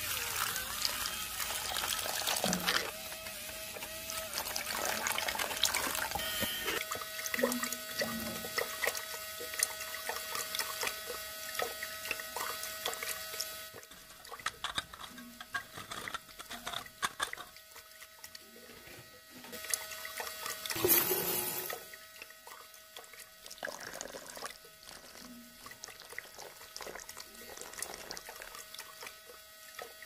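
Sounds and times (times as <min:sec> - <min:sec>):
water pouring into powder: 0:00.0 - 0:14.5, 0:19.6 - 0:30.0
small electric motor whirring: 0:00.0 - 0:23.4.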